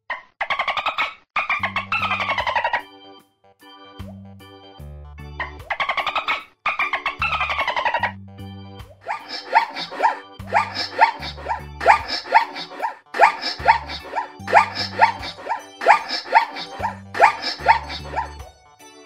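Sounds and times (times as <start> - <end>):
zebra barking yelps: 0.5 - 2.9, 5.4 - 8.2, 9.0 - 18.4
background music with bass: 3.7 - 5.7, 7.1 - 18.6.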